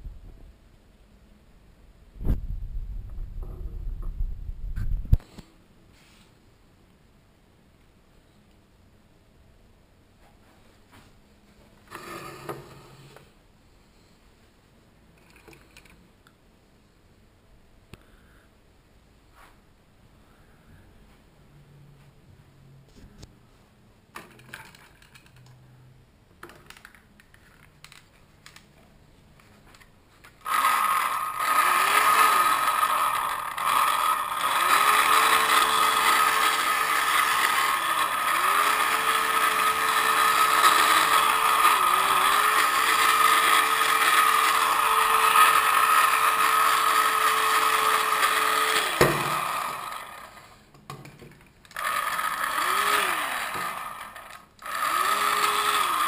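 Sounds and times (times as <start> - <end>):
blower fan whirring: 30.3 - 51.0, 51.6 - 56.0.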